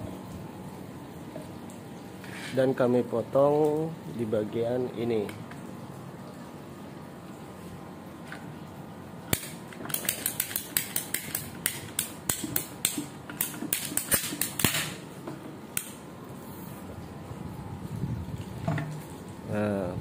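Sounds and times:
ratcheting pipe cutter clicking: 9.3s - 15.0s.

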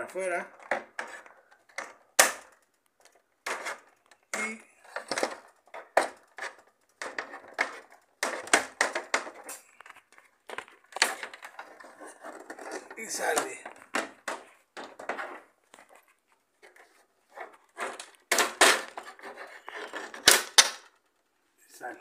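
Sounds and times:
hard plastic clicking and knocking: 0.5s - 15.4s, 19.9s - 21.1s.

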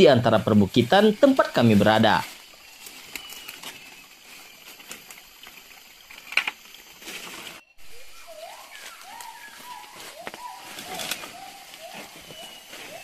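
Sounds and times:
bird whistled calls: 2.4s - 4.6s, 7.7s - 13.0s.

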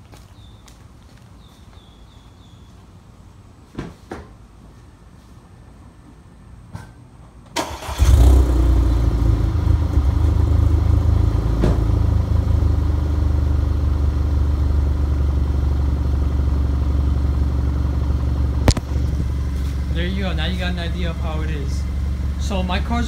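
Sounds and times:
car engine starting and idling: 7.5s - 23.0s.

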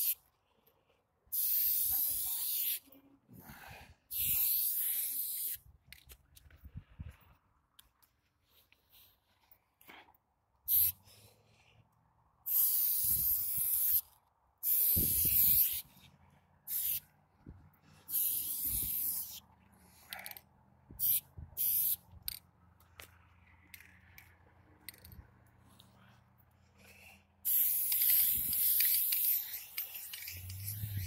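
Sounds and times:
spray paint can hissing: 0.0s - 0.2s, 1.3s - 2.9s, 4.1s - 5.6s, 10.7s - 11.0s, 12.4s - 16.0s, 16.7s - 17.1s, 18.0s - 19.4s, 21.0s - 22.4s, 27.4s - 31.0s.

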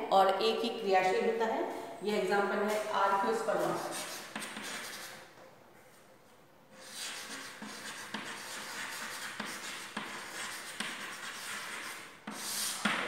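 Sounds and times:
chalk scratching on chalkboard: 2.7s - 5.3s, 6.8s - 13.0s.

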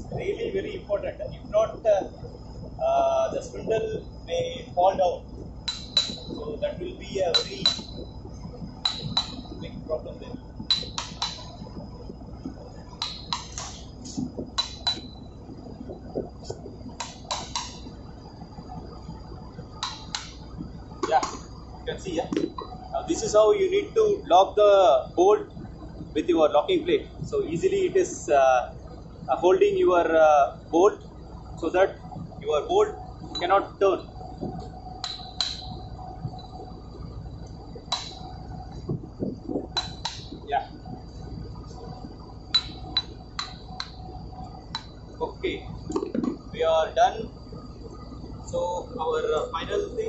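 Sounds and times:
metallic taps with ringing: 5.6s - 6.4s, 7.3s - 8.1s, 8.8s - 9.6s, 10.7s - 11.6s, 13.0s - 13.8s, 14.5s - 15.2s, 19.8s - 20.4s, 35.0s - 35.8s, 37.9s - 38.3s, 39.8s - 40.4s, 42.5s - 44.0s
hammer tapping on metal: 5.7s - 6.4s, 8.8s - 9.6s, 13.0s - 13.8s, 14.6s - 15.2s, 35.0s - 35.8s.

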